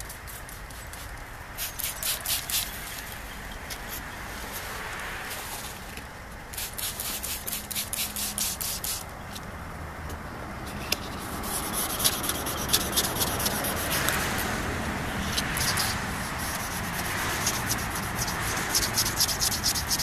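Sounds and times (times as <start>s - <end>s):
wet sandpaper rubbing on plastic: 0.0s - 3.0s, 6.6s - 9.1s, 11.0s - 14.5s, 15.2s - 20.0s.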